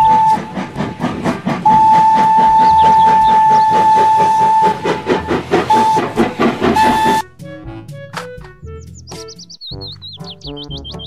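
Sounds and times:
toy train whistle: 0.0s - 0.6s, 1.6s - 4.9s, 5.7s - 7.2s
toy steam train chuffing: 0.0s - 7.2s.

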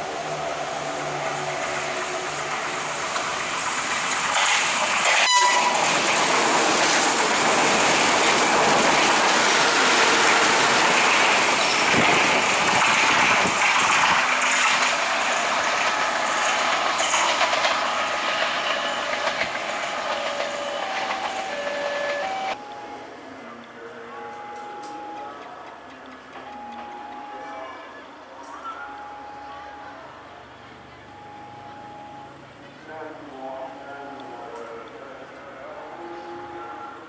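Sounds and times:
train passing at speed: 0.0s - 24.0s.

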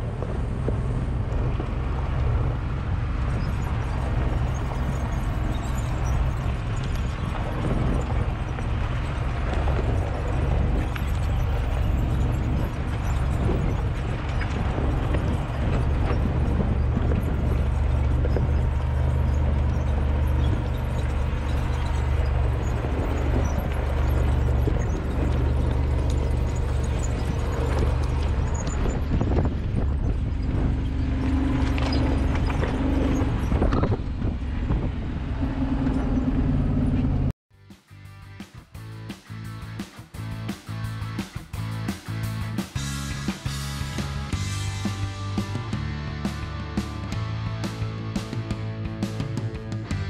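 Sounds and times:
brakes squeaking: 0.0s - 37.4s
vehicle engine rumble: 0.0s - 37.4s, 38.0s - 50.0s
knocks and rattles: 3.2s - 35.0s.

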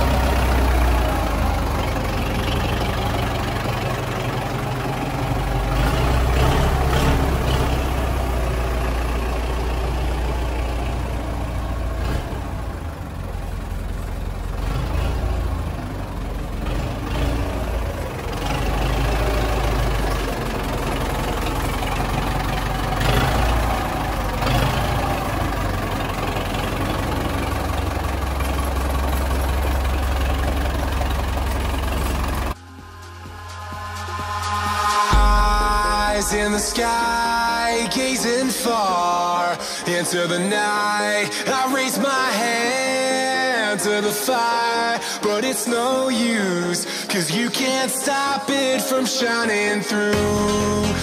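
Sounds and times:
tractor diesel engine idling: 0.0s - 51.0s.

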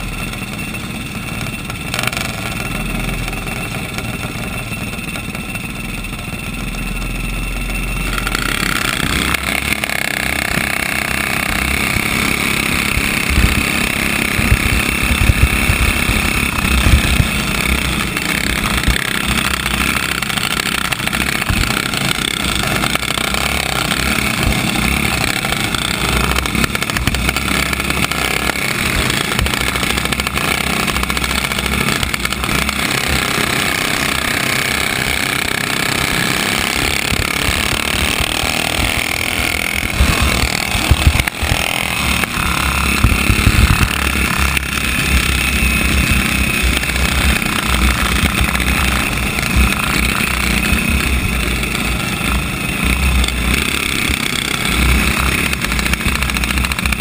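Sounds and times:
drone of other karts: 0.0s - 57.0s
kart engine at full throttle: 0.0s - 57.0s
loud thumps: 8.1s - 51.9s
wind noise: 11.4s - 23.3s, 37.0s - 53.5s.

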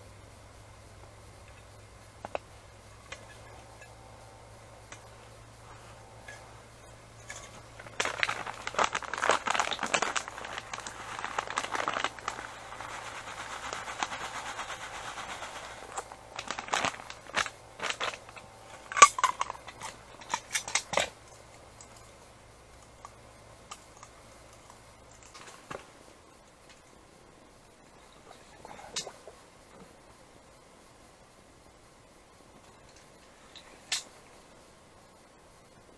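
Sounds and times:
sharp crackles and clicks: 1.3s - 26.9s, 32.6s - 34.4s
packet crinkling and rustling: 7.3s - 21.1s.

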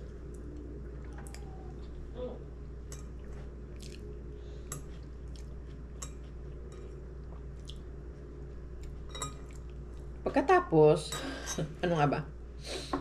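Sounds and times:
low hum: 0.0s - 12.6s
person chewing: 3.0s - 7.9s.

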